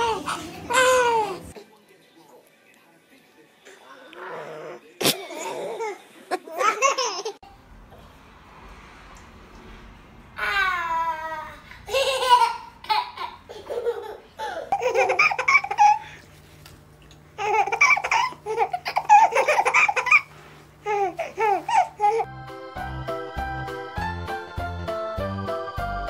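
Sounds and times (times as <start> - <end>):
babies laughing and squealing: 0.0 - 1.6, 10.4 - 16.2, 17.4 - 20.3, 20.9 - 22.3
music track: 22.2 - 26.0.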